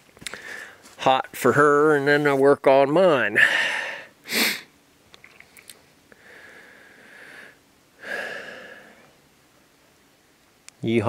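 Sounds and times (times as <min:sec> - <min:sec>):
person breathing out: 0:00.3 - 0:00.8, 0:06.2 - 0:09.1
person sniffing: 0:04.3 - 0:04.7.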